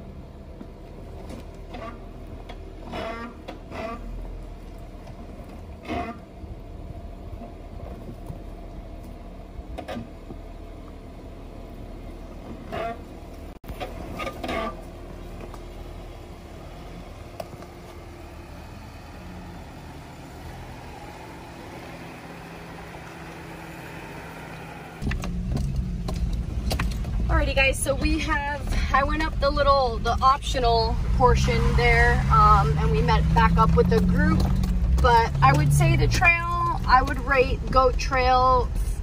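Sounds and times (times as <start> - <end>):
engine running at low revs: 0.0 - 39.0.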